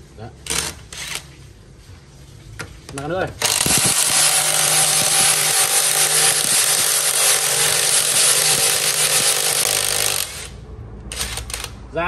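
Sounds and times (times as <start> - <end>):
impact wrench hammering: 3.4 - 11.7.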